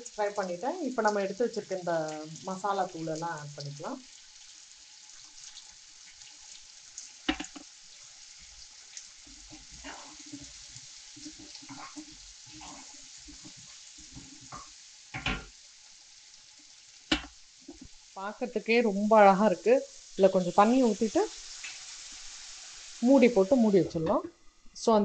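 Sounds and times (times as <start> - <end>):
beans sizzling in oil: 0.0 - 25.0
wooden spatula scraping a pan: 7.5 - 14.8.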